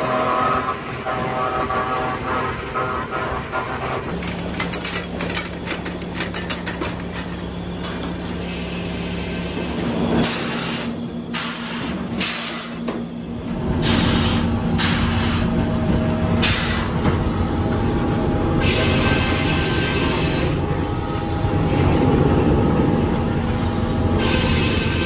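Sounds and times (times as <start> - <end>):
sawmill machinery hum: 0.0 - 25.0
rapid rattling and clattering: 4.1 - 8.2.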